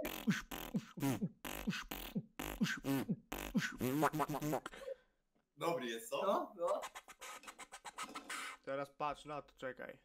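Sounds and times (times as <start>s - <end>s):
beatboxing: 0.0s - 4.7s, 6.6s - 8.6s.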